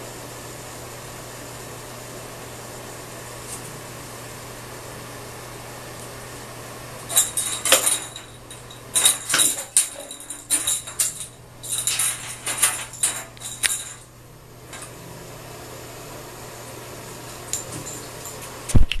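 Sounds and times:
low steady hum: 0.0 - 19.0
toy clattering in bathtub: 7.0 - 14.1.

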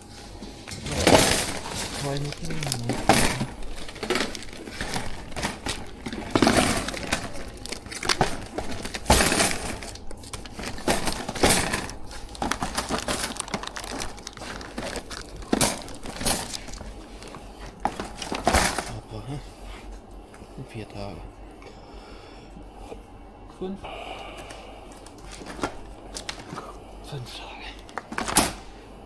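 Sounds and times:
packaging crinkling: 0.8 - 19.0, 25.0 - 26.7, 27.8 - 28.7.

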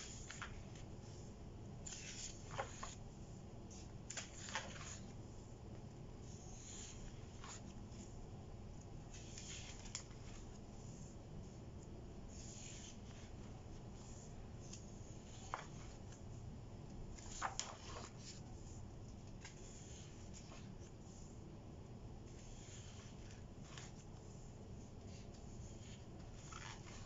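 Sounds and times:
paper pages rustling: 0.0 - 3.0, 3.7 - 5.5, 9.1 - 16.2, 17.0 - 21.2, 25.0 - 27.0
page flipping snaps: 4.0 - 5.1, 9.2 - 10.4, 17.1 - 18.2.

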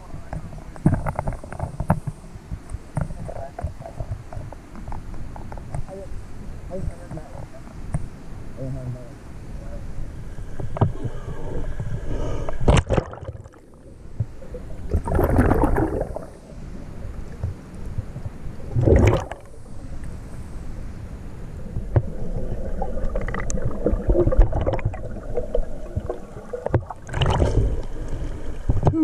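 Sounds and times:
underwater river current rushing: 0.0 - 29.0
water splashing surges: 10.8 - 29.0.

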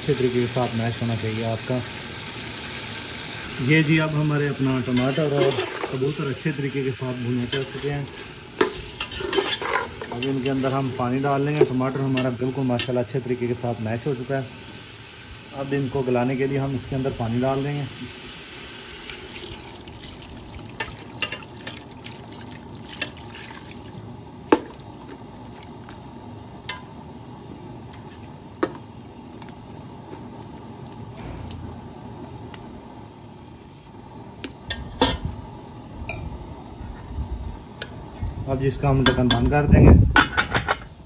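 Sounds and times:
water pouring into pot: 17.7 - 26.0.

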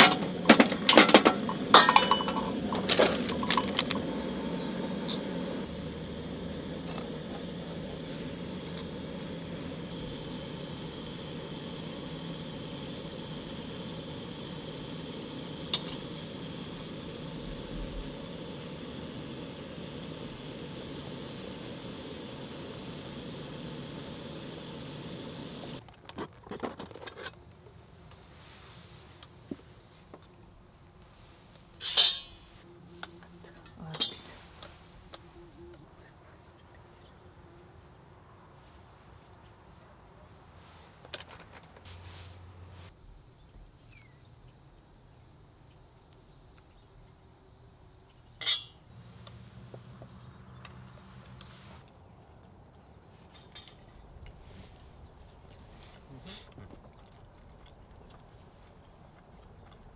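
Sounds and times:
metal tableware clicking: 0.0 - 3.8
metal mess tin clinking: 0.0 - 4.1
hot water pouring from kettle: 0.0 - 25.8.

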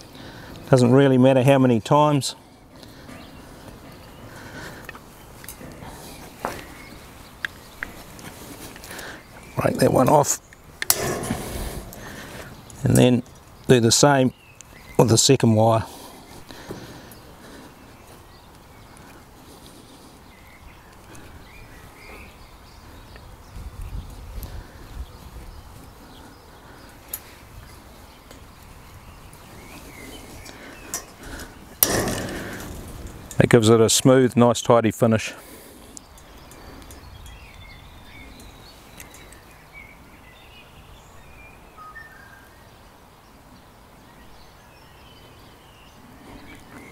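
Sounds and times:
low background noise: 0.0 - 46.9
low bumps: 1.6 - 15.2, 27.2 - 33.8
faint bird chirps: 35.9 - 46.9.

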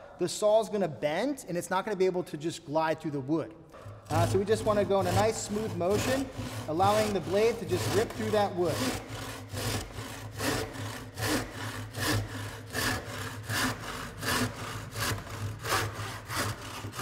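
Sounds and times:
hand saw cutting wood: 3.8 - 17.0.

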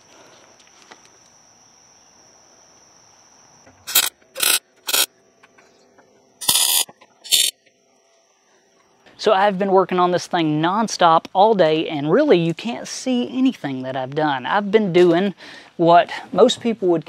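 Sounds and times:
high insect drone: 0.0 - 16.5
harsh power tool bursts: 3.8 - 5.1, 6.4 - 7.5.

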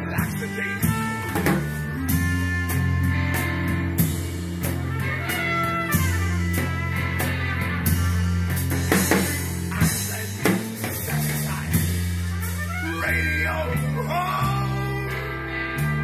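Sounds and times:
man singing: 0.0 - 2.4, 8.8 - 15.6
rock band playing: 0.0 - 16.0.

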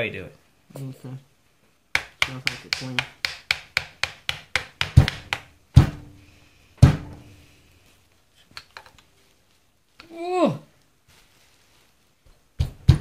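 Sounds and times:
rapid light taps: 1.9 - 6.0
tool knocking on metal: 2.0 - 6.0.

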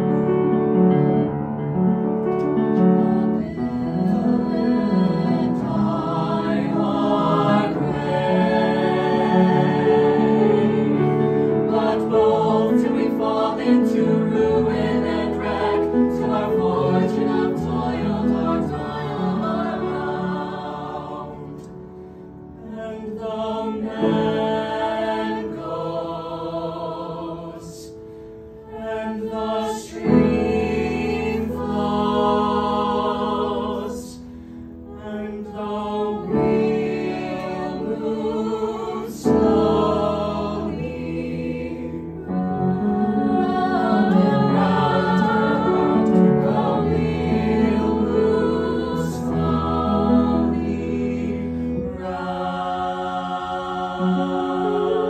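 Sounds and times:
vocal ensemble singing in harmony: 0.0 - 0.8, 1.8 - 55.0.

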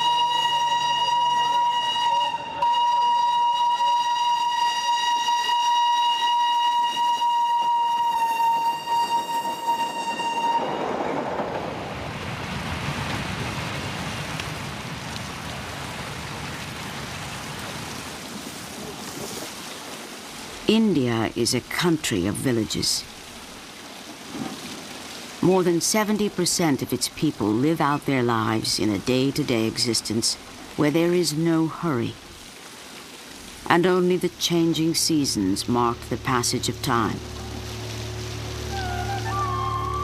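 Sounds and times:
steam locomotive whistle: 0.0 - 11.2, 38.0 - 40.0
rush of moving train: 6.0 - 14.4.

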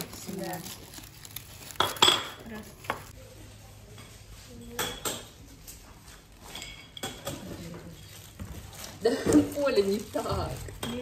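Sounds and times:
plastic bags crinkling: 0.0 - 3.1, 7.9 - 11.0.

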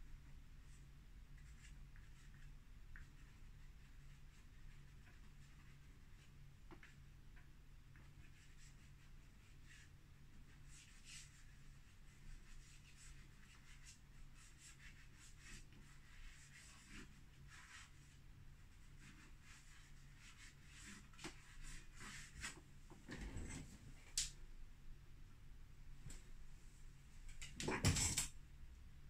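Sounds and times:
chalk pastel scratching on board: 10.5 - 18.1, 18.8 - 22.6.

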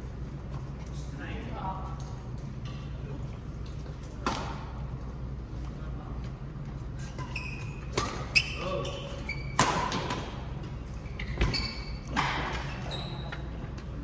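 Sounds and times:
shoes squeaking on court: 6.9 - 14.0.

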